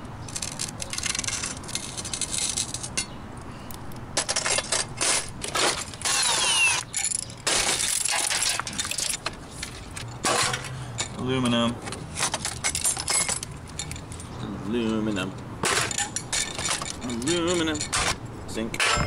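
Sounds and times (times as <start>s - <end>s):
metallic clinks and knocks: 4.2s - 19.0s
cordless drill whirring: 6.1s - 6.8s.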